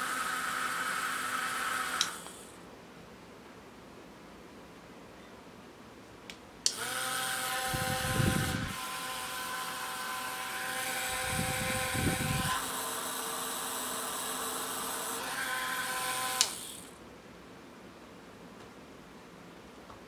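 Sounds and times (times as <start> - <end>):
small motor whine: 0.0 - 2.6, 6.7 - 17.0.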